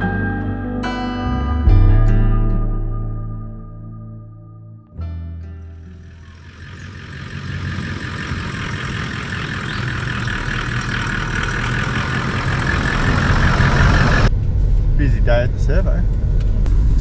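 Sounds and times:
vehicle engine and road noise: 0:05.4 - 0:17.0.

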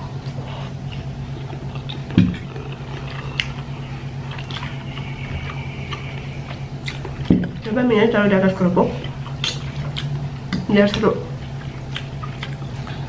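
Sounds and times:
person chewing: 0:00.0 - 0:07.7, 0:08.9 - 0:13.0
steady low hum: 0:00.0 - 0:13.0
wet mouth clicks: 0:09.0 - 0:10.7, 0:11.6 - 0:13.0.

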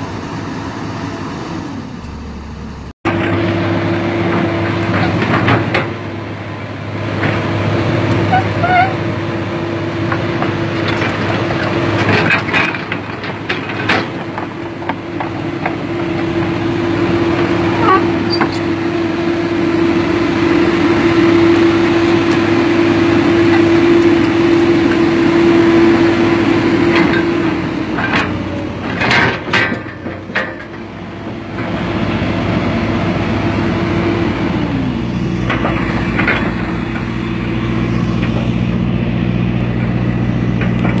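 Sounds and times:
hydraulic whine: 0:00.0 - 0:04.7, 0:15.7 - 0:41.0
excavator diesel engine: 0:00.0 - 0:41.0.

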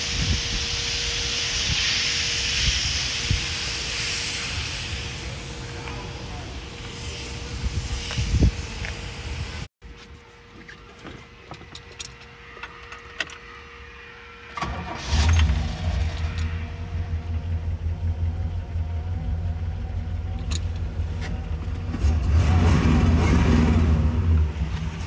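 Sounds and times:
keys rattling in ignition: 0:10.5 - 0:13.6
car engine starting and idling: 0:10.7 - 0:25.0.

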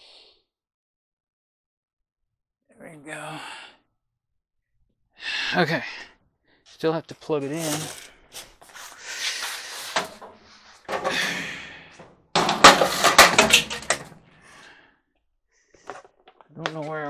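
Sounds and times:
rustling and scraping: 0:07.4 - 0:14.2
rattling clatter of knocks: 0:10.0 - 0:14.2.

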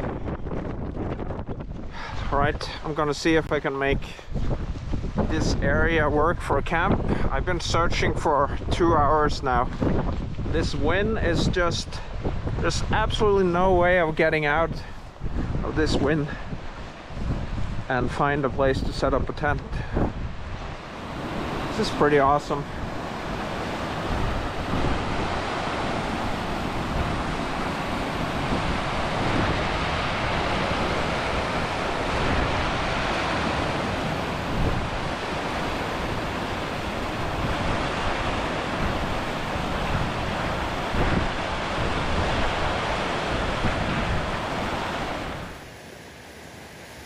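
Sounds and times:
wind gusting on microphone: 0:00.0 - 0:47.0
stream rushing over rock: 0:20.7 - 0:47.0.

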